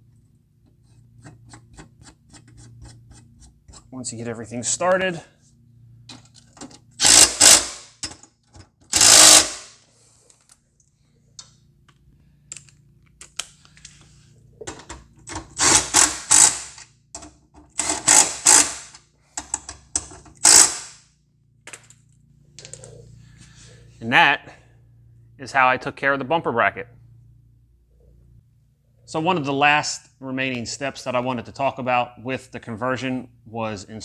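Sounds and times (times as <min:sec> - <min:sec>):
power ratchet whirring: 0:07.0 - 0:08.0, 0:08.9 - 0:09.8, 0:15.5 - 0:16.9, 0:17.8 - 0:19.0, 0:20.4 - 0:21.0.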